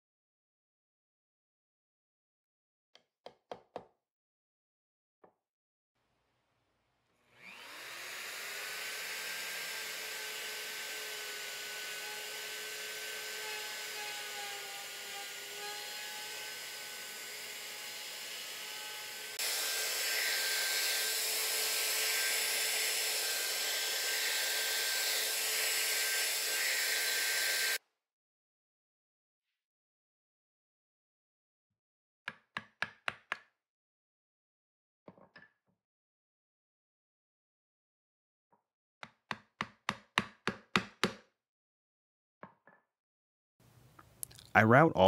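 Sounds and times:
router whining while cutting wood: 7.2s - 27.8s.

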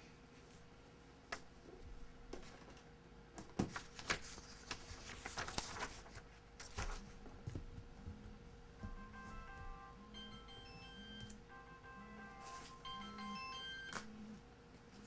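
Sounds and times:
paper rustling and crinkling: 3.5s - 7.2s.

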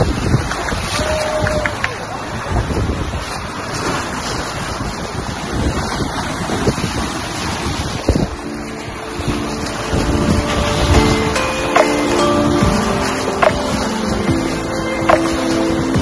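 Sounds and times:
sea water rushing and splashing: 0.0s - 16.0s
wind buffeting microphone: 0.0s - 16.0s.

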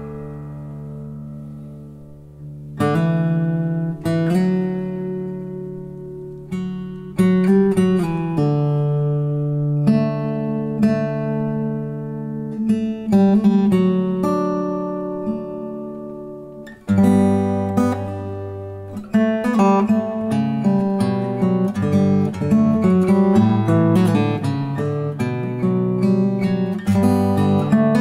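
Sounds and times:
acoustic guitar fingerstyle picking: 0.0s - 28.0s.

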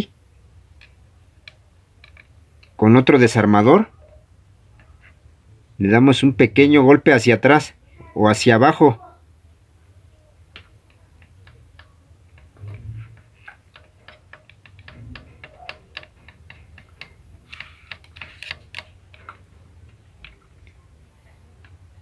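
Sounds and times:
screwdriver tapping metal: 0.8s - 2.8s, 10.6s - 20.8s
dull thumps: 12.3s - 17.5s.

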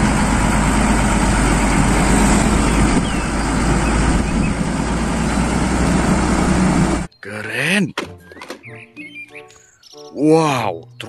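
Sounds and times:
truck diesel engine running: 0.0s - 7.1s.

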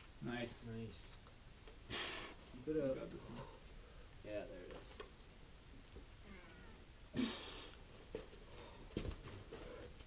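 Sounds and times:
hissing exhale: 1.9s - 2.4s.

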